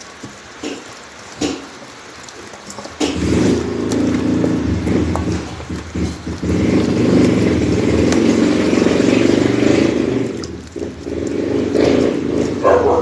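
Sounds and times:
vehicle engine running: 3.1s - 13.0s.

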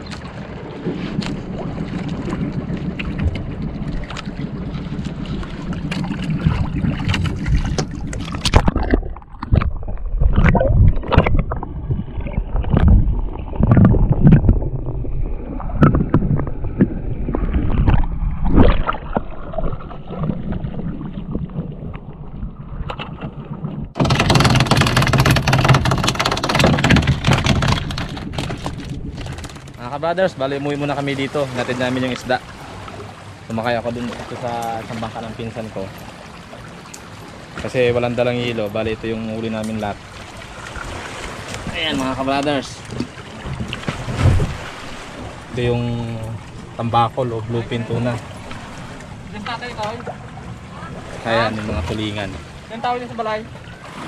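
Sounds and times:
low underwater thuds: 0.0s - 30.0s, 40.3s - 47.2s
boat deck noise: 0.0s - 54.0s.

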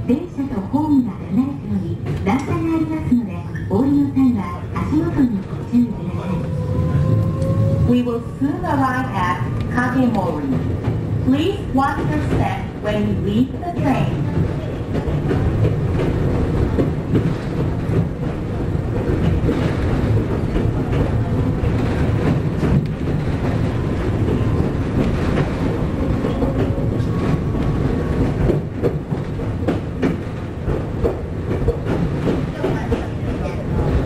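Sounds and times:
train rumble: 0.0s - 34.0s
wheels clacking over rail joints: 9.0s - 34.0s.

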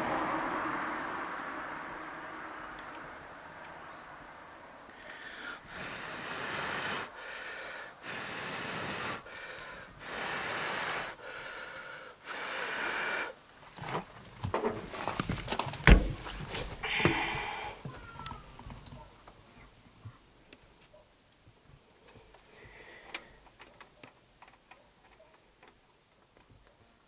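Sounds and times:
person blowing on a torch: 5.0s - 13.4s
handling clatter with knocks: 13.7s - 17.2s.

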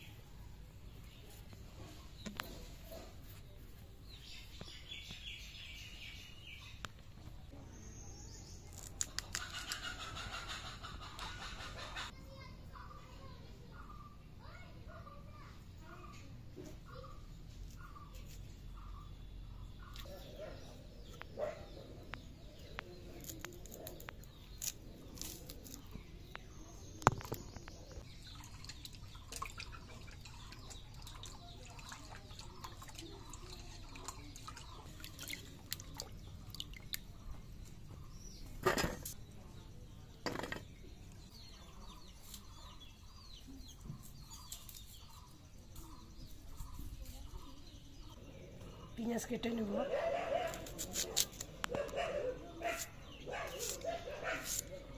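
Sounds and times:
birds chirping: 0.0s - 54.9s
water splashing in a pot: 28.3s - 37.1s
knife scraping vegetables: 50.5s - 51.4s, 52.7s - 54.7s.

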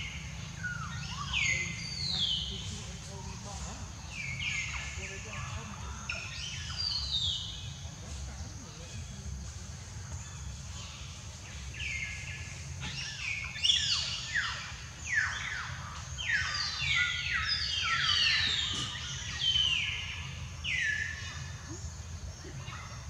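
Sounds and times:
birds chirping: 0.0s - 23.0s
steady low hum: 0.0s - 23.0s.

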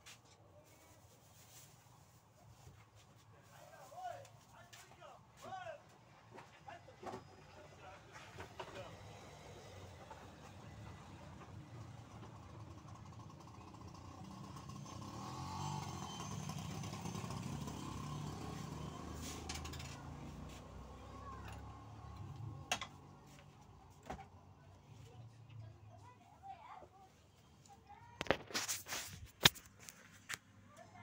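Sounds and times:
vehicle engine passing: 8.7s - 24.0s.

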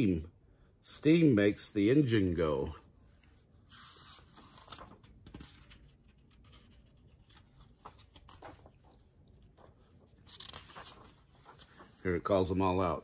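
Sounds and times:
paper page rustling: 3.4s - 12.8s.

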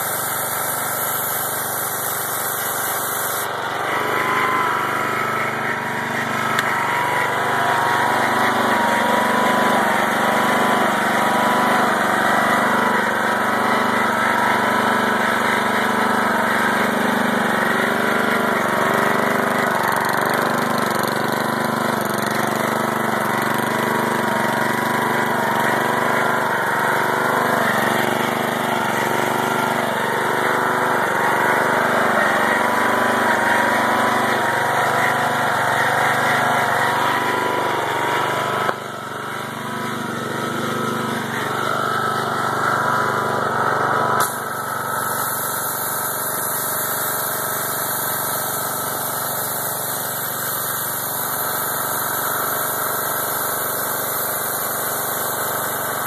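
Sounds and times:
water spray hissing: 0.0s - 4.6s, 44.2s - 56.0s
pressure washer engine running: 0.0s - 56.0s.

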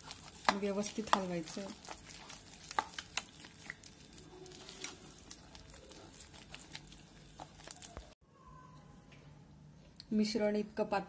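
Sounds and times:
spatula stirring thick batter: 0.0s - 8.2s.

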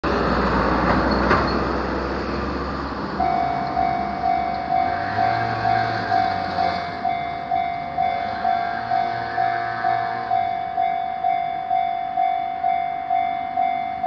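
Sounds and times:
car passing: 0.0s - 12.5s
level crossing warning bell: 3.2s - 14.0s.

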